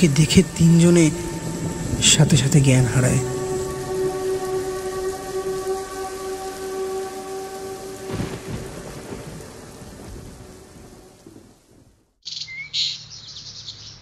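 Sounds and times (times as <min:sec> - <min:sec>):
held musical chord: 0:00.0 - 0:11.2
rain falling: 0:00.0 - 0:12.2
thunder rumble: 0:00.0 - 0:12.2
birds chirping: 0:12.2 - 0:14.0.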